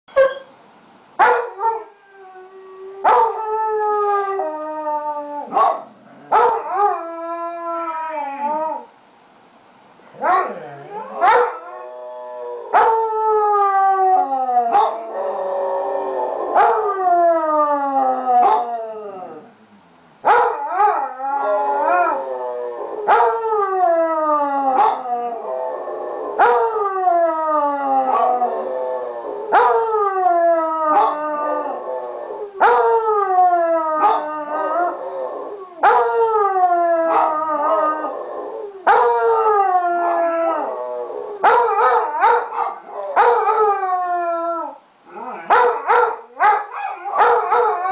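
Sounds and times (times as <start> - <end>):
dogs howling: 10.2 - 19.5, 20.3 - 47.9.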